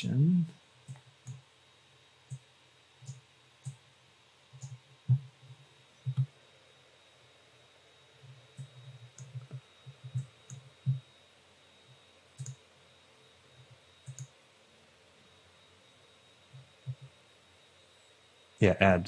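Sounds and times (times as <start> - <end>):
computer mouse clicks: 2.3 - 3.8, 4.6 - 5.3, 6.0 - 6.3, 8.5 - 11.0, 12.4 - 12.6, 14.0 - 14.4
keyboard typing: 6.0 - 6.3, 8.6 - 11.0, 12.4 - 12.6, 14.0 - 14.4.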